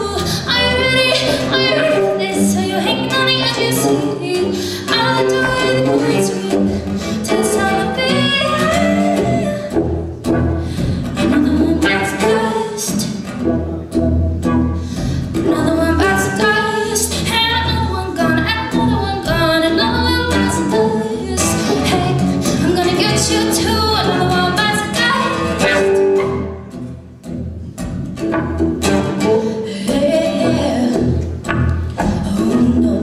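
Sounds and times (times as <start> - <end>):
woman singing: 0.0 - 9.8, 11.1 - 13.2, 15.2 - 26.4, 29.1 - 31.4, 32.0 - 33.0
electric guitar: 0.0 - 33.0
drums: 8.5 - 33.0.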